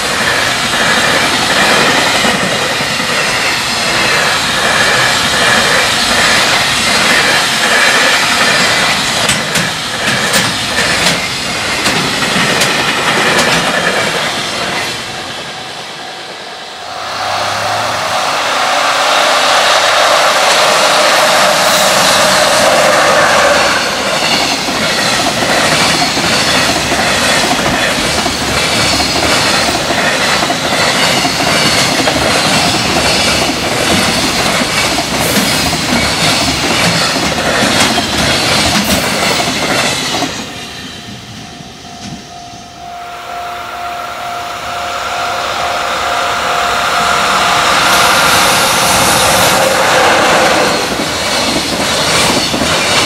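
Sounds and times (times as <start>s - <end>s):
wheels clacking over rail joints: 0.0s - 14.9s
freight train passing: 0.0s - 53.0s
steady tone: 15.1s - 24.2s, 41.4s - 51.3s.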